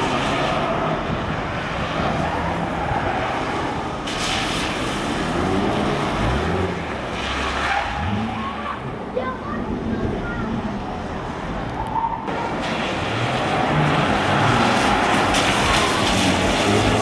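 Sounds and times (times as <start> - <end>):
car engine drone: 0.0 - 17.0
hissing tyre spray: 12.3 - 17.0.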